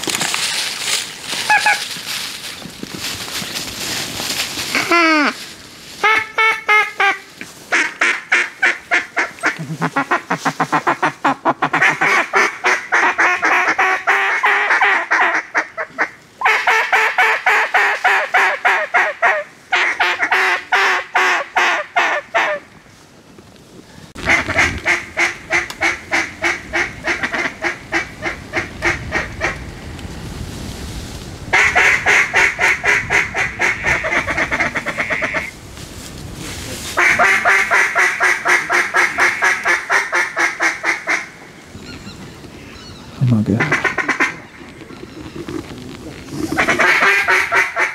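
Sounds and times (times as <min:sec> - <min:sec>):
duck calls quacking: 0:01.4 - 0:01.9, 0:06.0 - 0:22.6, 0:24.2 - 0:29.6, 0:31.5 - 0:35.5, 0:37.0 - 0:41.3, 0:43.5 - 0:45.4, 0:46.4 - 0:47.9.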